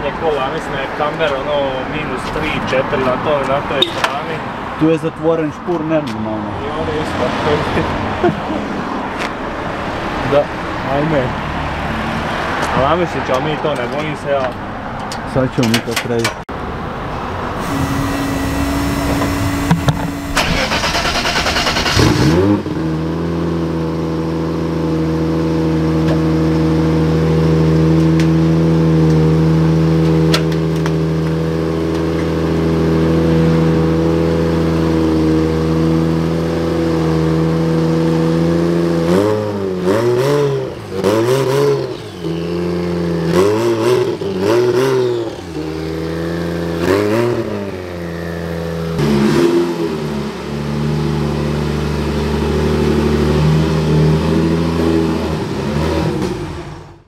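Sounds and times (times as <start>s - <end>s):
car engine idling: 17.6s - 22.4s
engine revving: 17.6s - 57.0s
engine cranking on starter: 19.0s - 22.5s.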